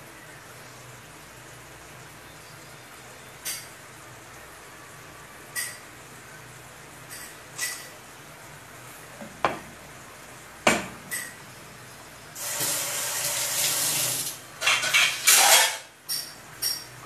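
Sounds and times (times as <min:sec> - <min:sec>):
water tap running: 0:12.3 - 0:14.6.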